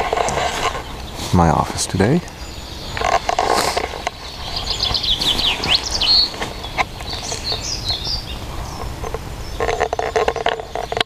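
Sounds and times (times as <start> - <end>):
songbirds chirping and warbling: 0.0 - 11.0.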